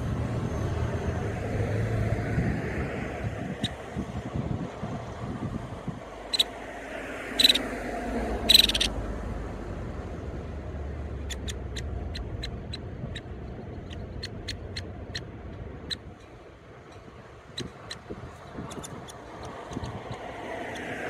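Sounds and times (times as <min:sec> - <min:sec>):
woodpecker nestling calling: 0:06.3 - 0:06.5, 0:07.4 - 0:07.7, 0:08.4 - 0:08.9, 0:11.2 - 0:16.1, 0:17.5 - 0:20.9.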